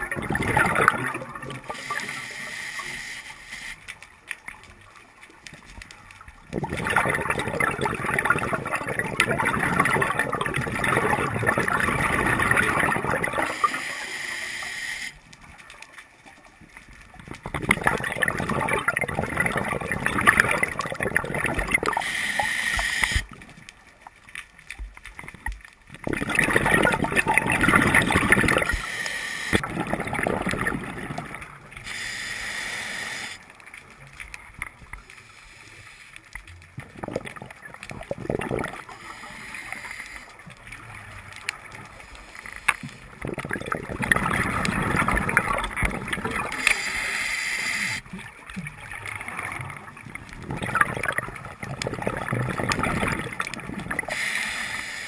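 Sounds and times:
exhaled bubbles rushing: 0.0s - 2.2s, 6.1s - 13.8s, 16.6s - 22.1s, 25.0s - 31.9s, 36.7s - 39.1s, 42.8s - 47.0s, 47.9s - 54.3s
regulator inhalation hiss: 1.7s - 3.9s, 13.4s - 15.3s, 21.9s - 23.4s, 28.7s - 29.6s, 31.8s - 33.5s, 35.0s - 36.3s, 38.8s - 40.5s, 41.9s - 43.1s, 46.6s - 48.0s, 54.1s - 55.0s.

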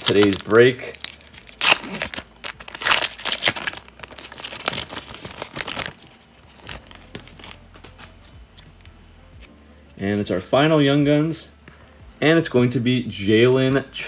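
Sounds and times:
foil wrapper ripping: 0.0s - 7.9s
foil wrapper crinkling: 0.0s - 8.1s.

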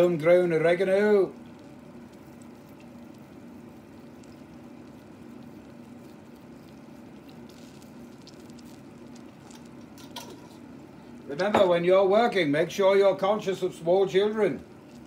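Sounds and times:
dried herbs sprinkled on cheese: 0.0s - 11.5s
steady low hum: 0.0s - 15.0s.

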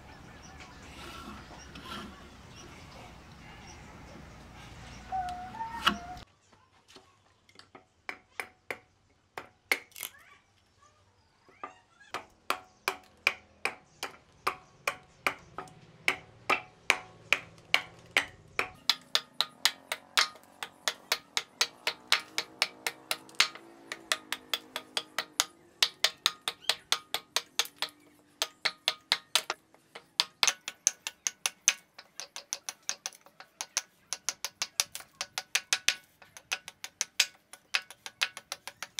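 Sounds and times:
hatchet chopping wood: 8.1s - 10.1s, 12.2s - 38.9s.

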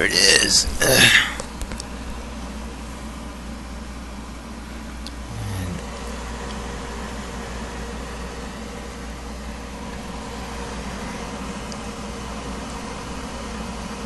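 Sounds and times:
whirring fans and disc drives: 0.0s - 14.0s.

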